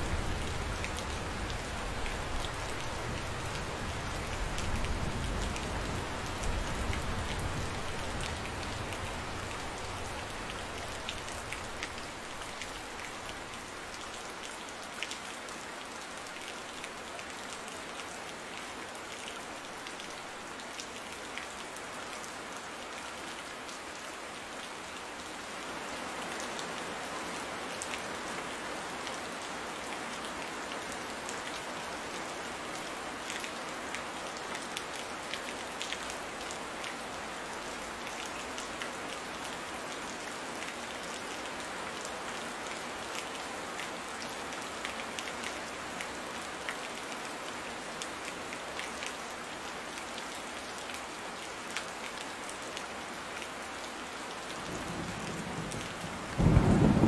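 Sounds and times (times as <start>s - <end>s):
rain falling on foliage: 0.0s - 57.0s
low rumble of thunder: 55.1s - 57.0s.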